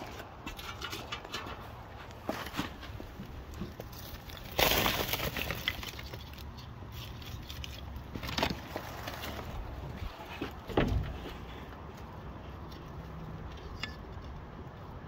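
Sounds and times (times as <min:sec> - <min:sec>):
coal clicking and rattling: 0:00.0 - 0:09.7
coal crunching rush: 0:00.0 - 0:13.5.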